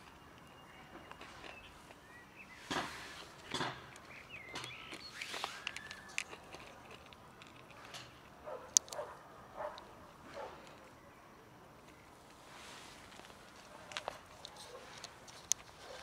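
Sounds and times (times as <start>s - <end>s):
cats chewing and lapping: 0.0s - 2.1s, 2.7s - 9.0s, 11.8s - 16.0s.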